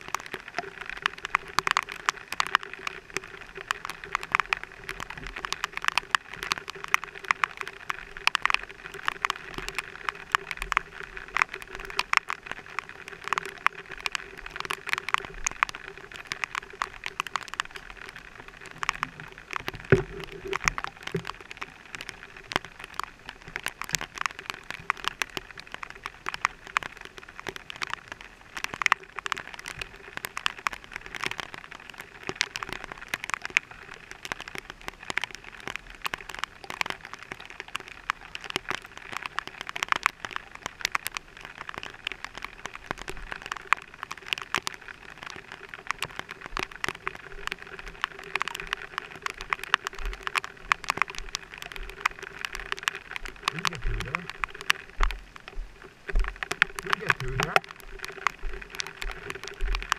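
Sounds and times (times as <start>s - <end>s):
raindrops ticking on camera housing: 0.0s - 59.9s.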